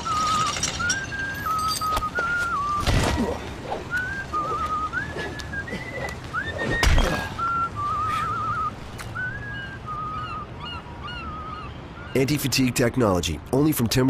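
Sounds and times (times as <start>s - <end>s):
person whistling a tune: 0.0s - 2.9s, 3.9s - 10.0s.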